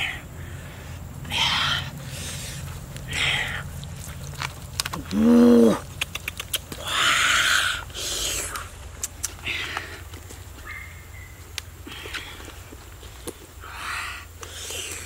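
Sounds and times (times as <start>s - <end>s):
hands squelching paste on skin: 2.5s - 7.2s.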